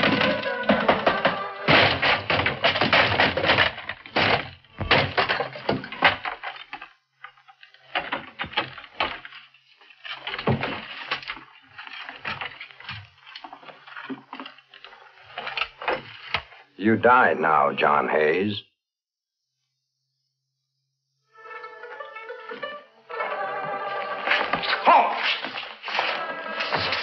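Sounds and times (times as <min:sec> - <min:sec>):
loud knocks and bangs: 0:00.0 - 0:06.5.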